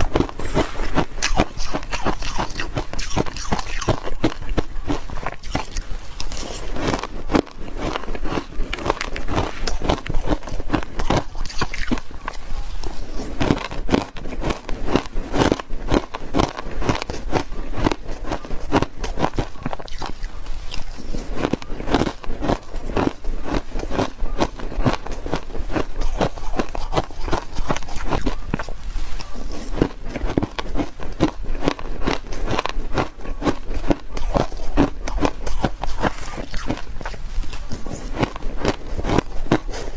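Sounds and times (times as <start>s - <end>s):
shaved ice crunching being chewed: 0.0s - 39.9s.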